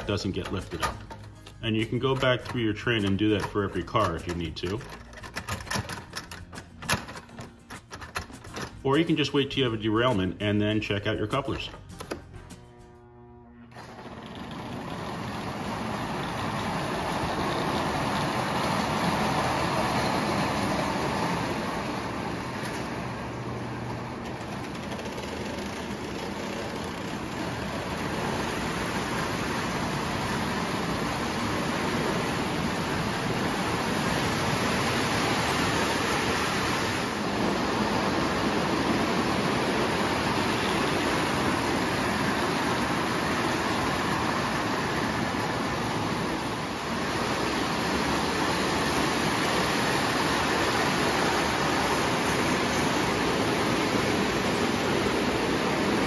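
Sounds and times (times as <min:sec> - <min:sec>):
toy train rattling on track: 0:00.0 - 0:09.2, 0:13.8 - 0:36.3.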